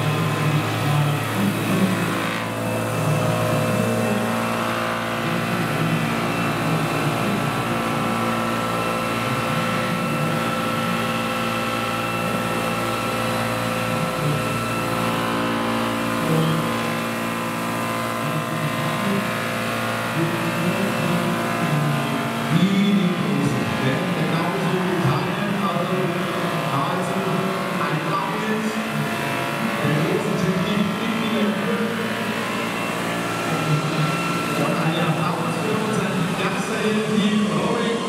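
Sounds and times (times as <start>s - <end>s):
model helicopter rotors whining: 0.0s - 38.0s.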